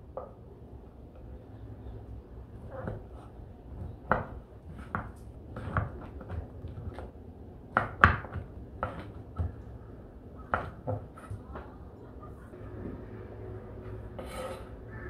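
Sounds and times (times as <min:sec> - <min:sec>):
knife chopping on wooden board: 0:04.0 - 0:07.1, 0:07.7 - 0:09.6, 0:10.5 - 0:11.4.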